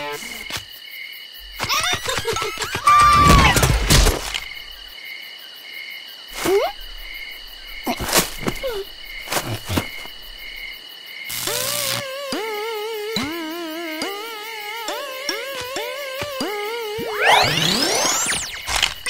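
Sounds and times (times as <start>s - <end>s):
crickets chirping: 0.0s - 19.0s
squeaky cartoon slides: 11.4s - 19.0s.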